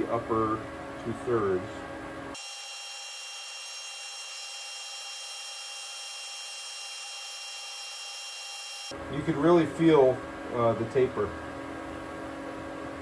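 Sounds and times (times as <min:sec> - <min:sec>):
lathe running with high whine: 0:02.4 - 0:08.9.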